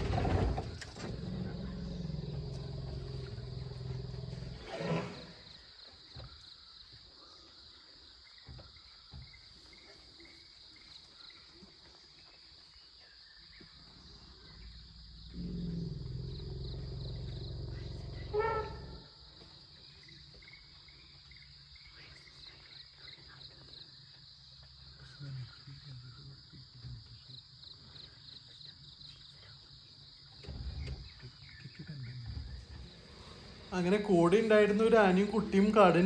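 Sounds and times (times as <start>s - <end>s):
insects chirring: 0.0s - 36.0s
elephant trumpeting: 15.4s - 19.1s.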